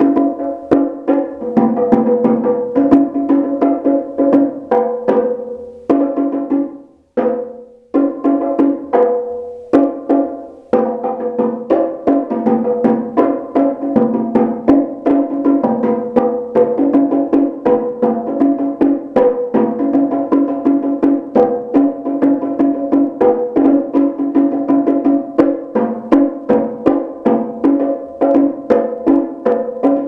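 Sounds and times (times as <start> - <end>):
bongo drums played by hand: 0.0 - 30.0.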